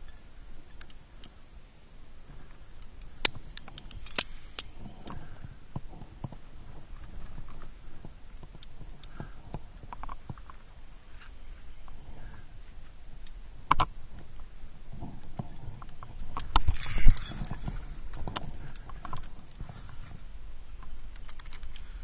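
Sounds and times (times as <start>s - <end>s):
carabiners clinking: 2.9s - 5.2s.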